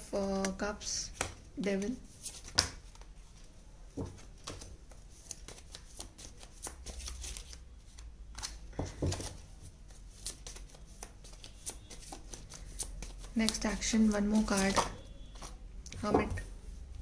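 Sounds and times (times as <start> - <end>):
cards being shuffled: 0.4 - 3.1, 4.1 - 16.0
cards slapping on table: 1.2 - 3.0.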